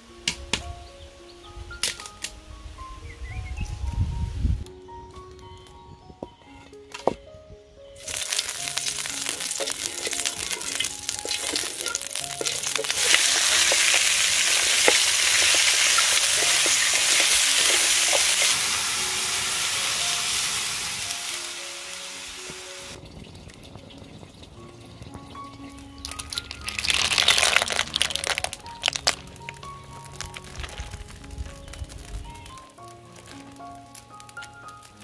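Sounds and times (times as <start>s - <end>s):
meat sizzling in a wok: 8.0s - 23.0s.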